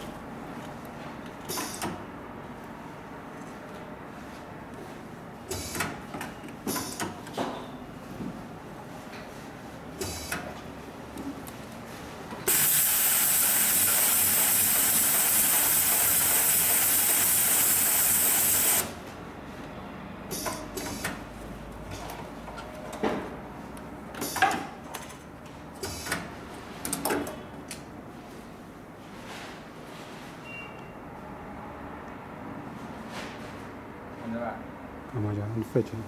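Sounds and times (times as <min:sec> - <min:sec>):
sewing machine hissing: 0:12.5 - 0:19.0.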